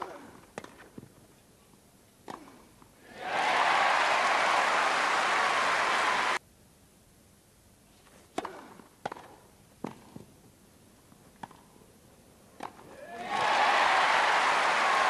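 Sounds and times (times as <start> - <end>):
crowd applause: 3.1 - 6.4, 13.2 - 15.0.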